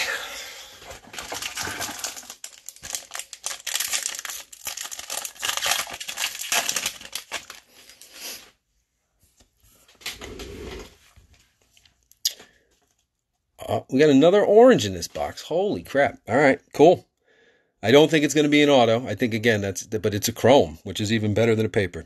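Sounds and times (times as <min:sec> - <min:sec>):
cards rustling: 0:00.8 - 0:08.2
foil wrapper crinkling and tearing: 0:00.9 - 0:08.2.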